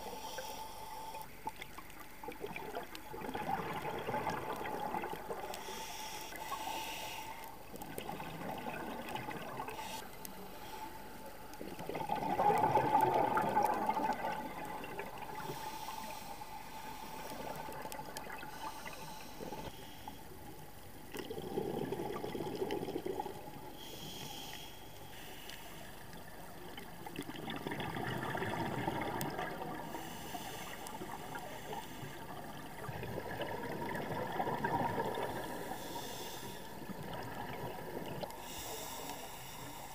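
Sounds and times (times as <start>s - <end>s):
diver inhaling through regulator: 0.0s - 1.3s, 5.5s - 7.6s, 9.7s - 11.4s, 15.2s - 20.3s, 23.7s - 26.0s, 29.8s - 32.4s, 35.0s - 36.9s, 38.3s - 39.9s
air bubbles exhaled underwater: 2.2s - 5.6s, 7.8s - 10.0s, 11.6s - 15.7s, 21.1s - 23.8s, 26.1s - 30.0s, 32.0s - 36.0s, 36.7s - 38.8s.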